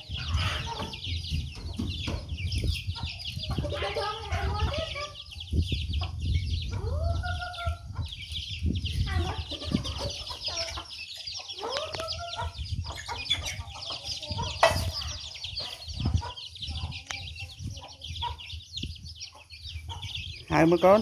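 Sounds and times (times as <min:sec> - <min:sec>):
chicks peeping: 0:00.0 - 0:21.0
hens clucking and calling: 0:00.0 - 0:21.0.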